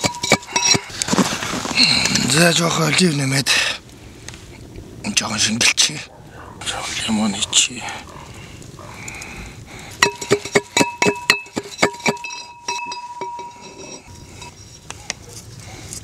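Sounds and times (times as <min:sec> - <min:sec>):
pestle pounding in metal can: 0:00.0 - 0:00.9, 0:10.0 - 0:13.6.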